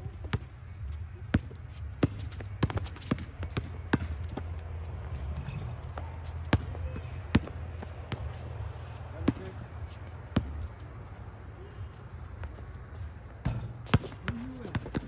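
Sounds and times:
basketball bouncing on hard court: 0:00.0 - 0:00.4, 0:01.3 - 0:04.4, 0:05.4 - 0:08.3, 0:09.2 - 0:09.5, 0:13.4 - 0:15.0
steady low hum: 0:00.0 - 0:15.0.

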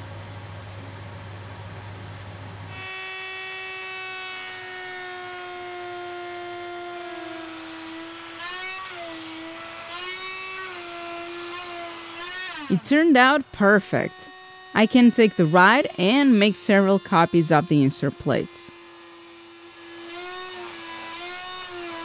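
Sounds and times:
router whining: 0:02.7 - 0:22.0.

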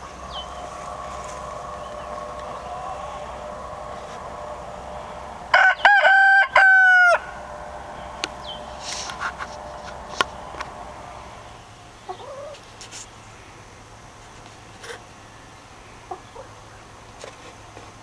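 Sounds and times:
rooster crowing: 0:00.0 - 0:12.6.

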